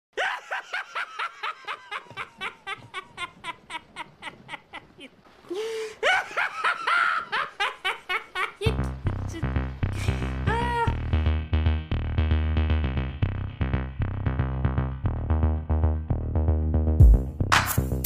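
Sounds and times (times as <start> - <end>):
person laughing: 0.2 - 9.4, 10.0 - 11.0.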